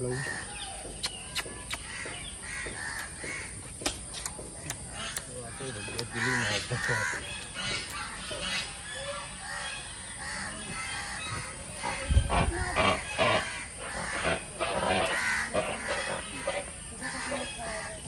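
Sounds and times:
crane calling: 4.6s - 18.0s.

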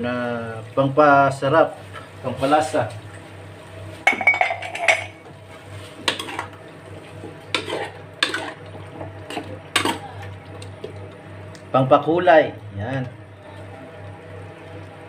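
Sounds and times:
utensil scraping metal pot: 5.9s - 6.6s, 7.5s - 8.6s.

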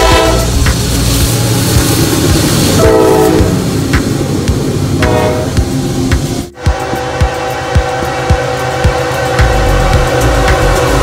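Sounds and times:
train air horn blasts: 0.0s - 1.8s, 2.6s - 3.7s, 5.0s - 5.7s, 6.6s - 11.0s
wheels clacking over rail joints: 0.0s - 6.5s
locomotive heavy rumble: 0.0s - 11.0s.

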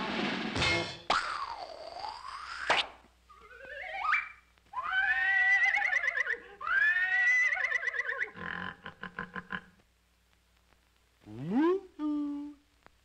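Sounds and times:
cartoon moose calling: 3.3s - 9.6s, 11.2s - 12.6s.

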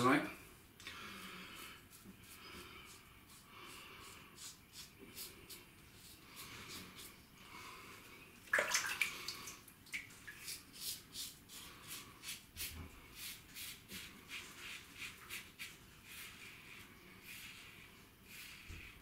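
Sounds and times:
water splash: 8.5s - 10.1s.

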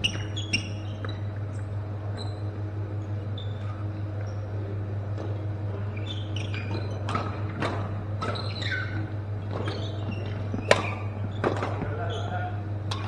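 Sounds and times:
shoes squeaking on court floor: 0.0s - 13.0s
steady low hum: 0.0s - 13.0s
racket hitting shuttlecock: 6.7s - 11.9s.

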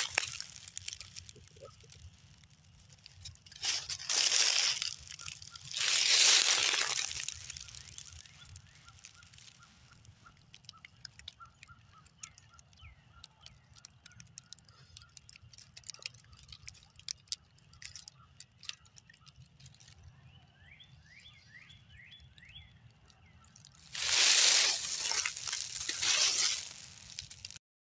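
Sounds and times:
footsteps crunching dry leaves: 0.0s - 1.9s, 3.2s - 10.2s, 23.8s - 27.6s
small birds chirping: 0.0s - 27.6s
faint clicks: 6.8s - 20.1s.

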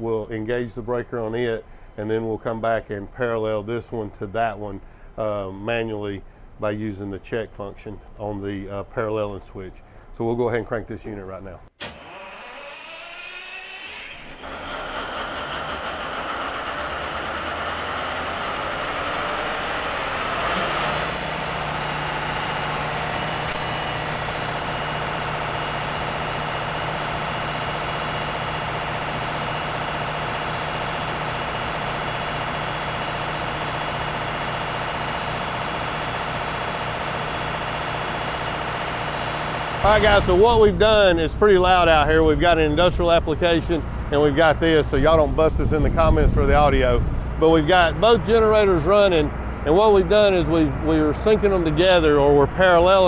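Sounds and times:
diesel generator engine running: 11.8s - 53.0s.

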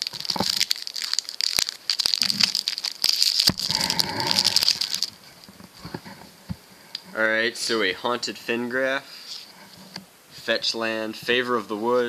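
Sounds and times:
foil wrapper crinkling: 0.0s - 6.1s.

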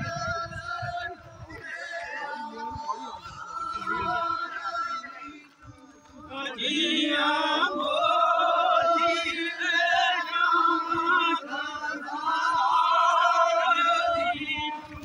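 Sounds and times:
man singing a devotional chant: 0.0s - 15.0s.

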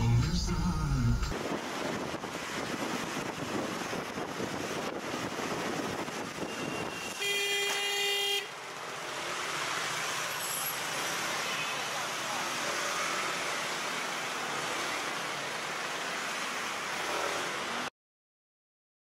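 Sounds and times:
scooter road noise in traffic: 1.2s - 17.9s.

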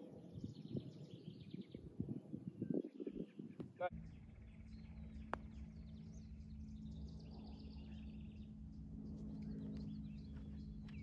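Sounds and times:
songbirds chirping faintly: 0.0s - 11.0s
low steady outdoor hum: 3.6s - 11.0s.

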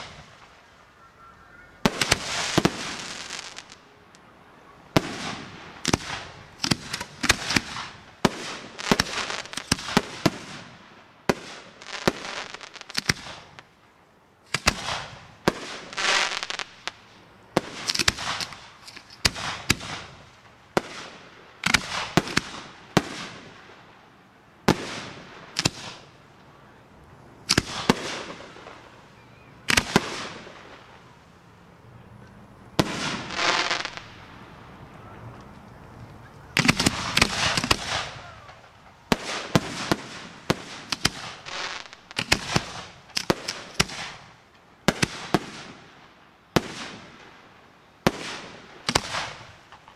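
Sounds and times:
fireworks bursting: 0.0s - 49.9s.

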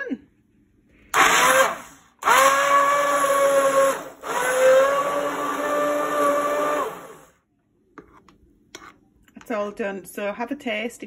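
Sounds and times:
immersion blender whining: 1.2s - 7.4s.

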